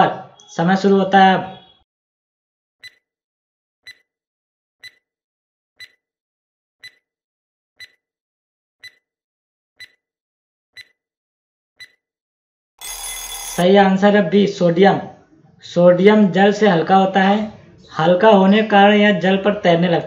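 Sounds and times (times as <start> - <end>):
clock ticking: 2.8 - 3.0, 4.8 - 5.0, 5.8 - 6.0, 6.8 - 7.0, 7.8 - 8.0, 8.8 - 9.0, 9.8 - 10.0, 10.8 - 11.0, 11.8 - 12.0.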